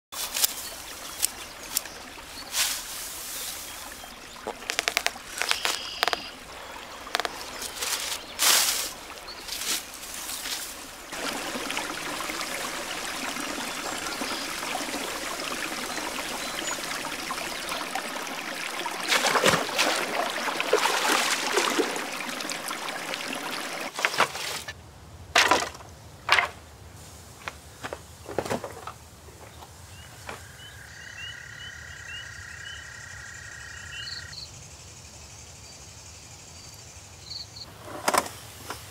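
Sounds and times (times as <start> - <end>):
knocks and rustling of straw: 0.2 - 6.3, 7.1 - 11.3
person wading through water: 0.2 - 24.6.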